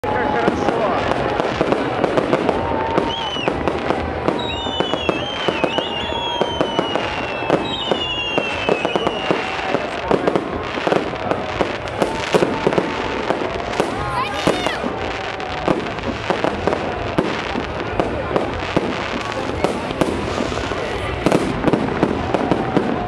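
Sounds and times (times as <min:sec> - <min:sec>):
fireworks bangs and crackles: 0:00.0 - 0:23.0
falling firework whistles: 0:00.5 - 0:17.5.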